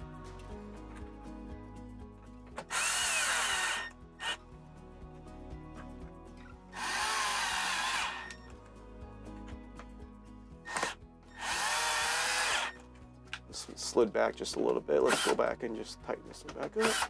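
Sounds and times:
cordless screwdriver driving screws: 0:02.6 - 0:04.4, 0:06.8 - 0:08.4, 0:10.7 - 0:12.8, 0:15.0 - 0:15.4, 0:16.6 - 0:17.0.

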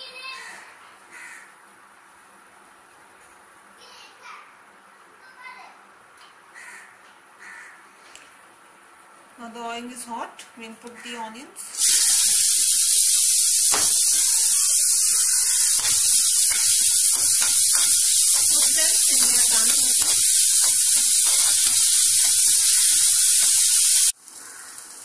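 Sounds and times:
onions sizzling in hot oil: 0:11.8 - 0:25.0
spoon scraping a pan: 0:13.6 - 0:24.1.

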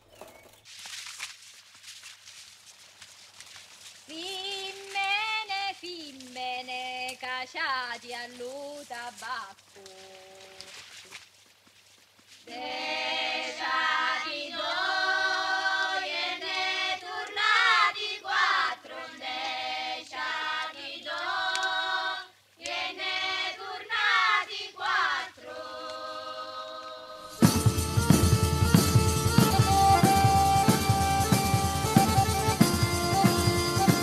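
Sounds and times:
voices singing slow melody: 0:12.5 - 0:34.0.

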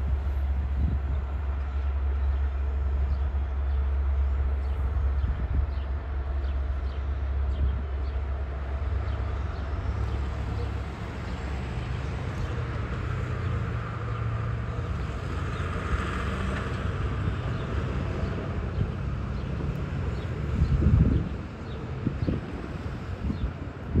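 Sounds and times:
diesel locomotive engine drone: 0:00.0 - 0:24.0.

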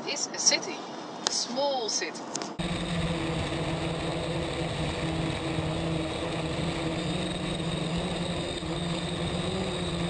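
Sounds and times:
faint high whine: 0:02.6 - 0:10.0
steady motor hum: 0:02.6 - 0:10.0.

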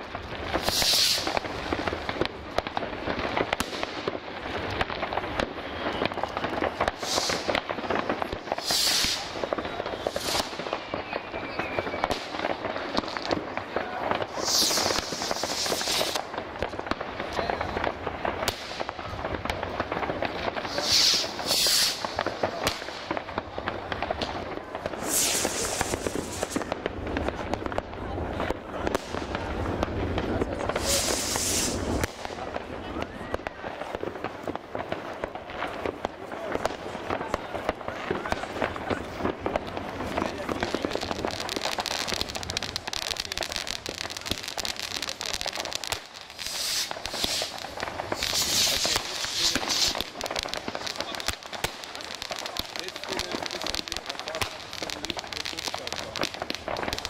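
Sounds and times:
fireworks bangs and crackles: 0:00.0 - 0:57.0
hissing firework burst: 0:00.2 - 0:57.0.

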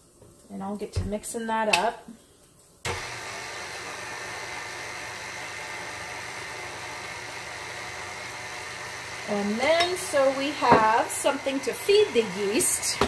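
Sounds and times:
stand mixer motor whining: 0:02.9 - 0:13.0.

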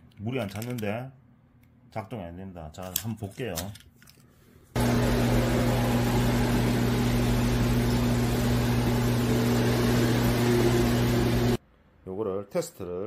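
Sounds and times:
underwater machinery drone: 0:04.8 - 0:11.6.

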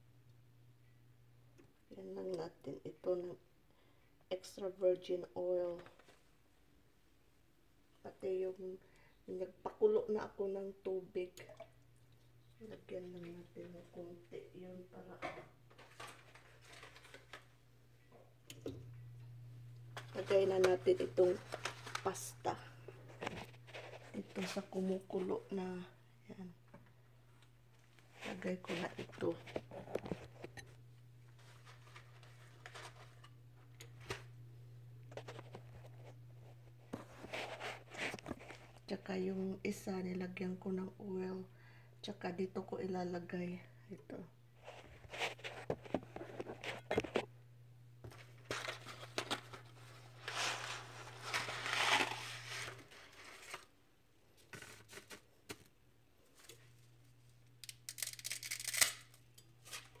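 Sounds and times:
low steady hum: 0:00.0 - 1:00.0
packaging tearing and crinkling: 0:48.4 - 0:53.7, 0:57.6 - 1:00.0.

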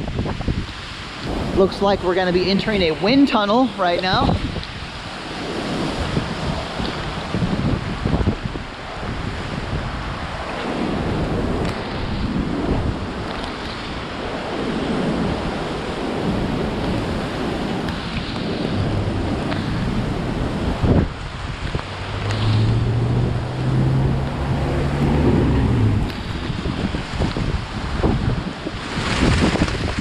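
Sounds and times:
rain: 0:00.0 - 0:30.0
strong wind buffeting microphone: 0:00.0 - 0:30.0
truck engine passing: 0:21.8 - 0:26.6.

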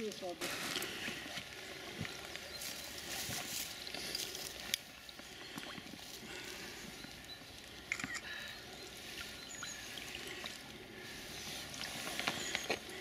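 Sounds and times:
water splashing and sloshing: 0:08.4 - 0:13.0.

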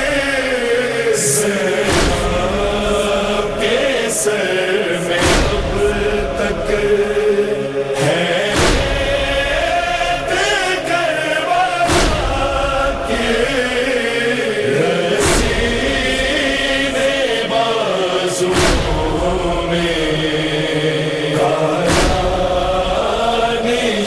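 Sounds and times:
men chanting in unison: 0:00.0 - 0:24.0
chest-beating thumps: 0:01.8 - 0:03.6, 0:05.2 - 0:06.3, 0:08.5 - 0:09.7, 0:11.9 - 0:12.9, 0:15.2 - 0:16.0, 0:18.5 - 0:19.3, 0:21.9 - 0:22.8.

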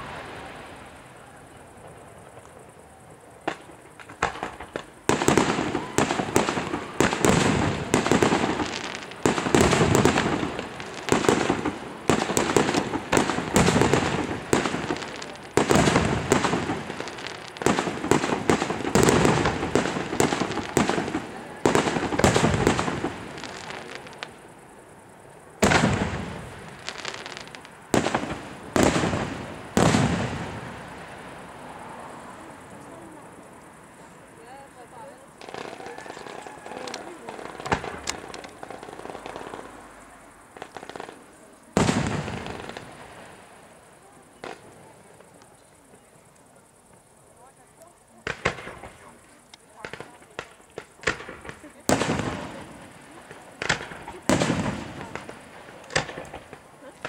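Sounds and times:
fireworks bursting: 0:00.0 - 0:46.0, 0:48.1 - 0:57.0.

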